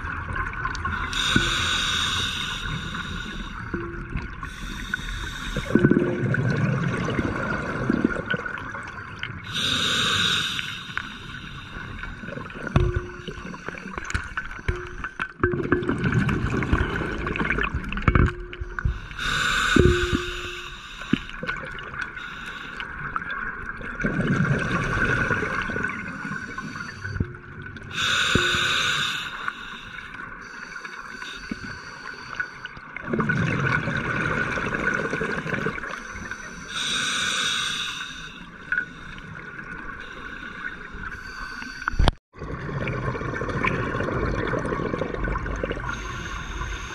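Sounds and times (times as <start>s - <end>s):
hissing regulator inhalation: 1.0s - 3.8s, 9.5s - 12.3s, 18.9s - 21.3s, 27.9s - 32.6s, 36.0s - 39.2s.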